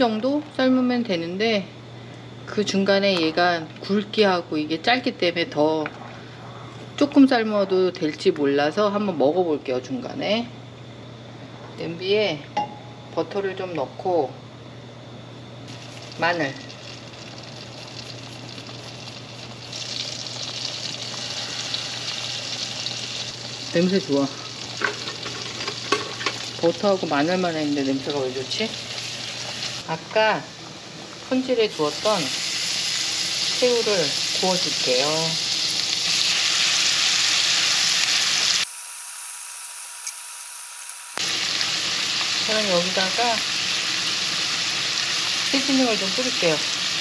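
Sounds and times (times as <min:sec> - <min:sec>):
butter sizzling in a frying pan: 0:15.7 - 0:29.8, 0:31.4 - 0:47.0.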